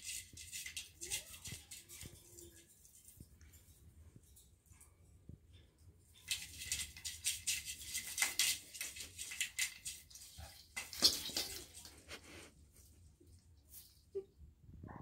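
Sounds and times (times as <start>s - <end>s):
branches and ornaments rustling: 6.1s - 14.2s.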